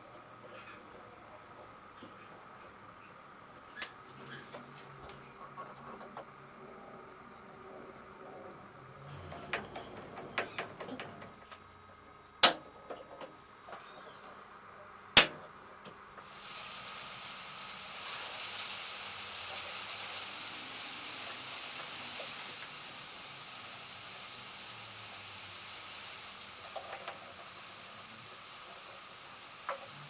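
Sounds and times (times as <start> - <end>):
steady hiss: 0.0 - 30.0
sharp loud clicks: 12.4 - 12.7, 15.2 - 15.5.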